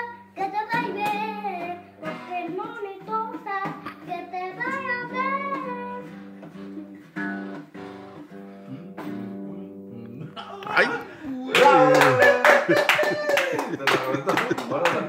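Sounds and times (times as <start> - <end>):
child singing: 0.0 - 6.1
strummed acoustic guitar: 0.0 - 12.2.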